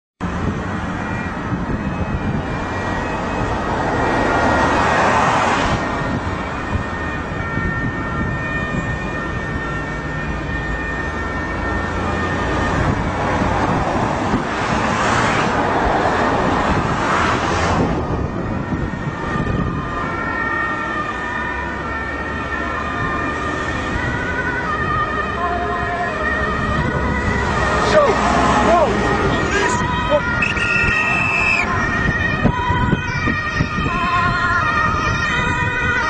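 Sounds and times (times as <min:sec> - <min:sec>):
motorway traffic passing: 0:00.2 - 0:36.0.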